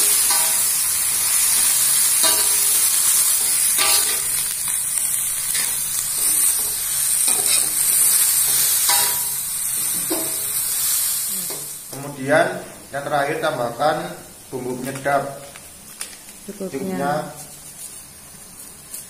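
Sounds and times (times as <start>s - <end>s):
metal spatula scraping a wok: 0.0s - 4.8s, 5.5s - 10.6s
greens sizzling in a wok: 0.0s - 19.0s.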